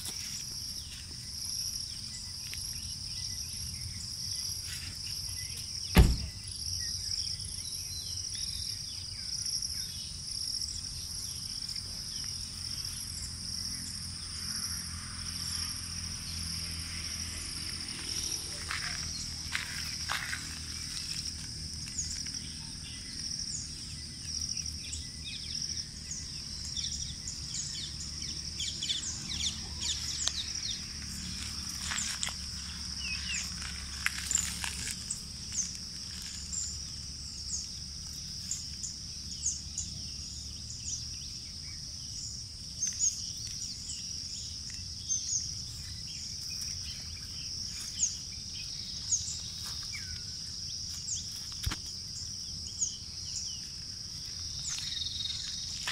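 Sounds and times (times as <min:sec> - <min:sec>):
high-pitched insect drone: 0:06.0 - 0:55.9
light scuffs on gravel: 0:17.7 - 0:22.5, 0:29.9 - 0:36.8, 0:53.6 - 0:55.9.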